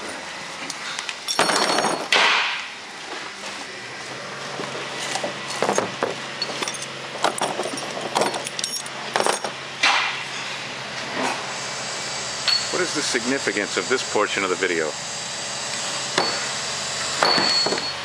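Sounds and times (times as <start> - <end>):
steel parts clinking: 1.3 - 2.2, 6.4 - 9.5.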